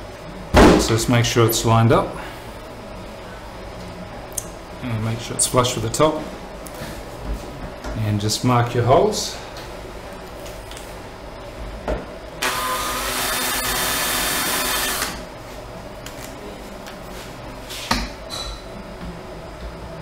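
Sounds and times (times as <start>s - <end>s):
cordless drill motor whine: 12.4s - 15.2s.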